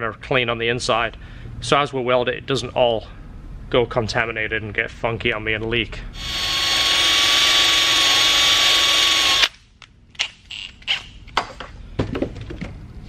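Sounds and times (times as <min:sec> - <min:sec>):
drill spinning wire brush: 0:06.2 - 0:09.5.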